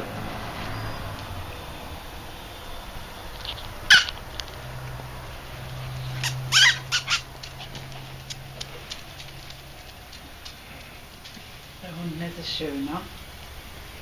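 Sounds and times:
small dog yelping: 3.9 - 4.2, 6.2 - 7.3.

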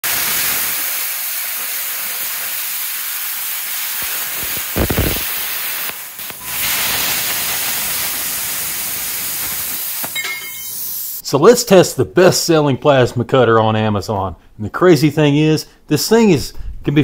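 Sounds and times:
plasma cutter hissing: 0.0 - 11.2.

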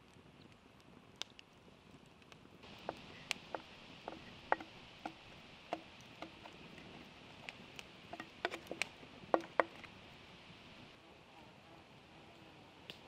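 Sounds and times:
whisk tapping against bowl: 2.8 - 6.6.

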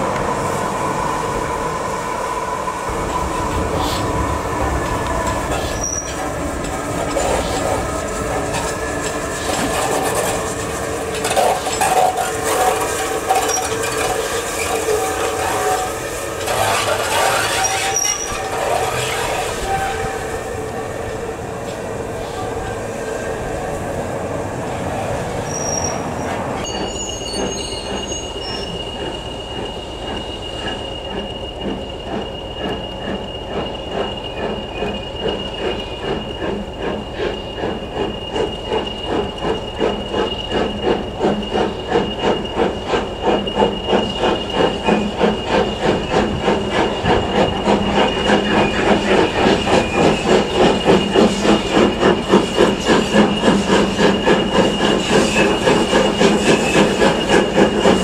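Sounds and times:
steam locomotive exhaust beats: 26.2 - 58.0.

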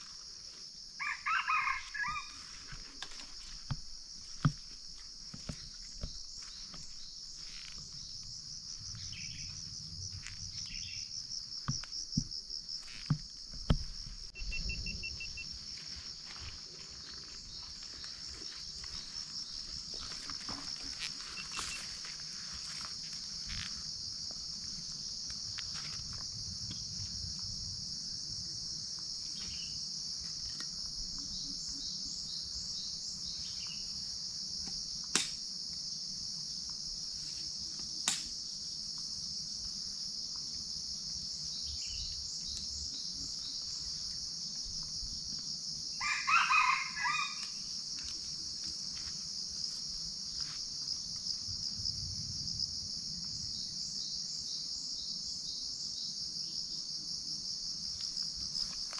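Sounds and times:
crickets and insects droning: 0.0 - 58.9
rooster crowing: 1.0 - 2.6, 46.0 - 47.6.

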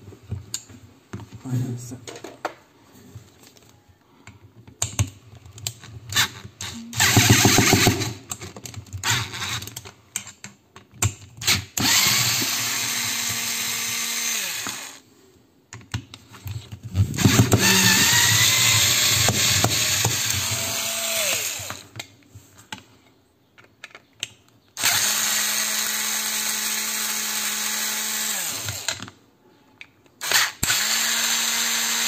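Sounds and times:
electric screwdriver whirring: 6.1 - 8.2, 9.0 - 9.7, 11.4 - 15.0, 17.1 - 21.8, 24.8 - 29.0, 30.2 - 32.0.

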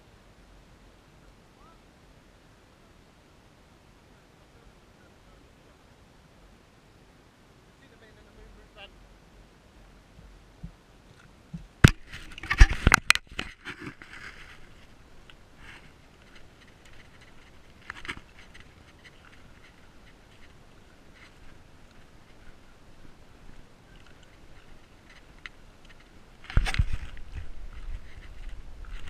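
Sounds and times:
beach shells knocking and crunching: 10.2 - 29.0.

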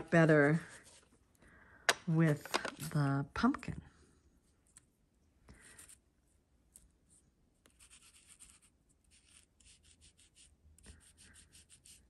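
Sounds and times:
ink rubbed through stencil: 7.7 - 12.0.

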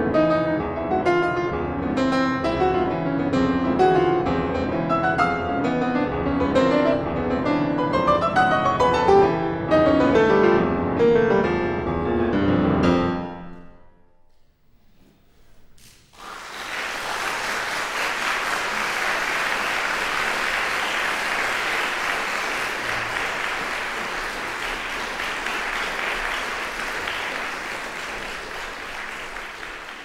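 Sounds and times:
audience applauding: 15.9 - 30.0.

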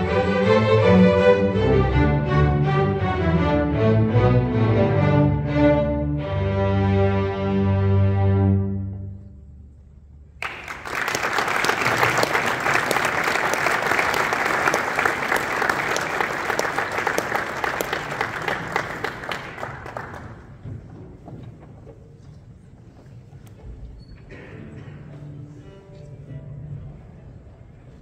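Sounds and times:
audience applause: 10.4 - 20.6.

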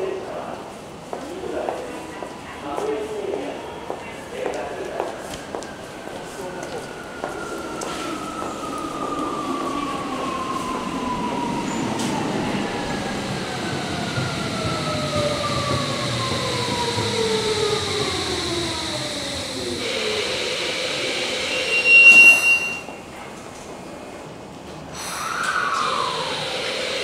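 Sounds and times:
train motors whining: 10.2 - 22.8
sharp high squeal: 21.3 - 23.1.

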